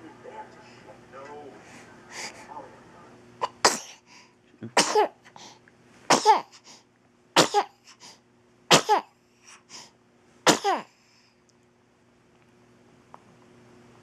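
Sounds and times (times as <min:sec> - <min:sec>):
baby sneezing: 0:03.4 - 0:04.0, 0:04.8 - 0:05.2, 0:06.1 - 0:06.6, 0:07.4 - 0:07.8, 0:08.7 - 0:09.1, 0:10.5 - 0:10.9.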